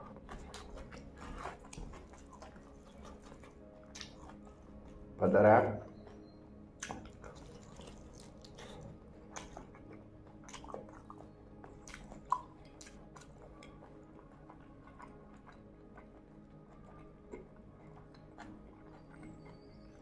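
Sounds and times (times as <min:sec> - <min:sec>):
close chewing of meat: 0:00.0 - 0:05.2, 0:05.9 - 0:20.0
wet mouth clicks and smacks: 0:00.3 - 0:04.5, 0:06.8 - 0:16.1.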